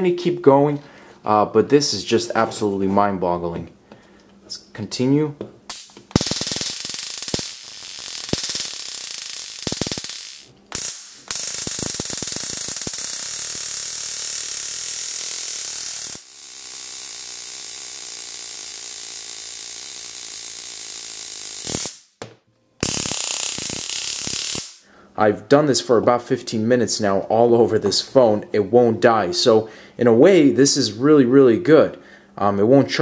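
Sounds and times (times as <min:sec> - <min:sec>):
stun gun electric arcing: 0:05.7 - 0:22.2, 0:22.8 - 0:24.8.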